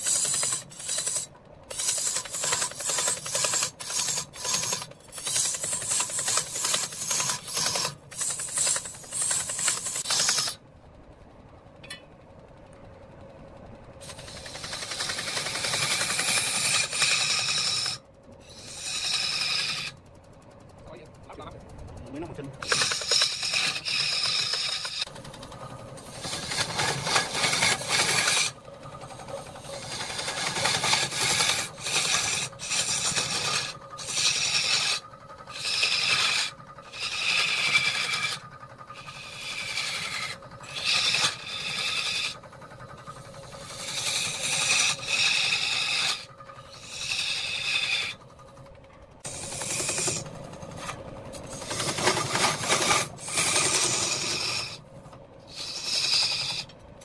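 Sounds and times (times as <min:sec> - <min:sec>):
lathe tool scraping wood: 0:00.0 - 0:10.6, 0:14.0 - 0:20.0, 0:22.6 - 0:48.3, 0:49.2 - 0:54.8, 0:55.5 - 0:56.8.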